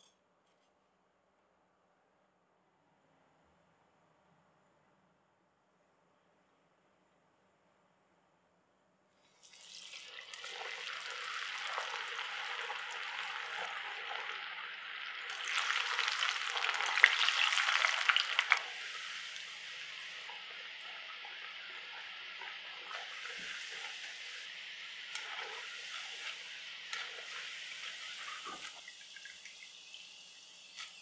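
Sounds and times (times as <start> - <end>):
food sizzling in hot oil: 9.3 - 31.0.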